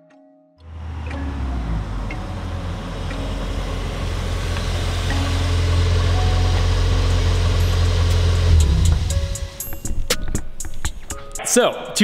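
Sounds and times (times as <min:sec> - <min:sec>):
car engine rumbling at low revs: 0:00.7 - 0:09.6.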